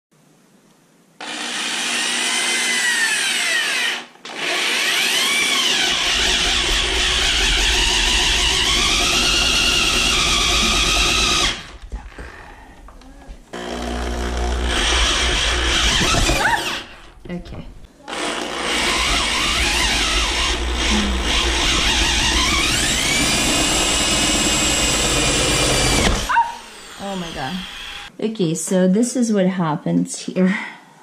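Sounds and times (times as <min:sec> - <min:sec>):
power drill boring into wood: 0:01.2 - 0:11.8, 0:13.6 - 0:17.1, 0:18.1 - 0:28.1.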